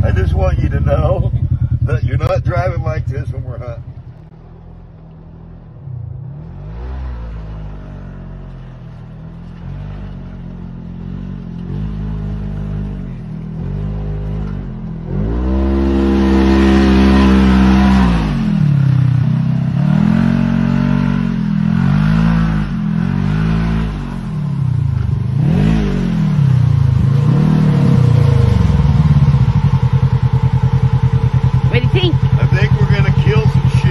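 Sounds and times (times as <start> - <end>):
off-road vehicle engine revving: 0.0 - 33.9.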